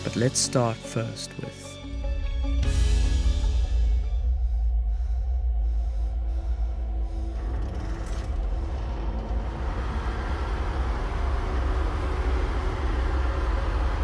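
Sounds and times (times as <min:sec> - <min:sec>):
deep steady rumble: 0:03.3 - 0:14.0
noisy roar: 0:06.2 - 0:14.0.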